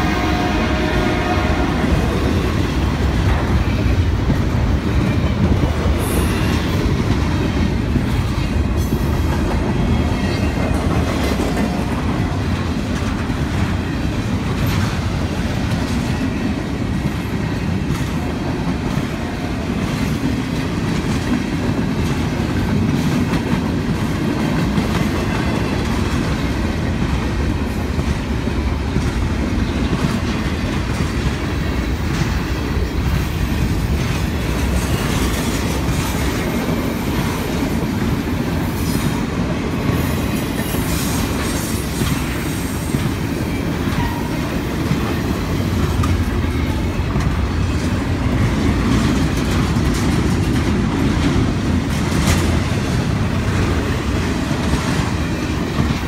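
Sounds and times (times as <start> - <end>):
freight train rumbling past: 0.0 - 56.0
wheels clacking over rail joints: 38.8 - 56.0.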